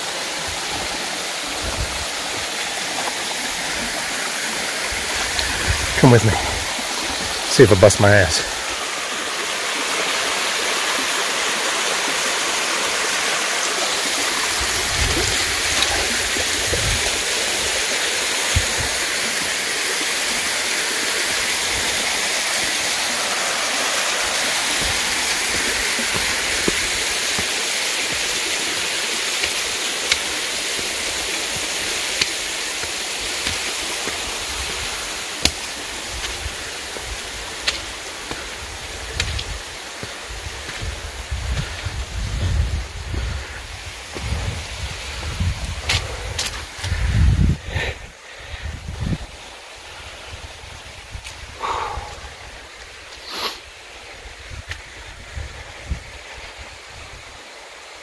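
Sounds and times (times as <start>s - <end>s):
waterfall splashing: 0.0s - 41.9s.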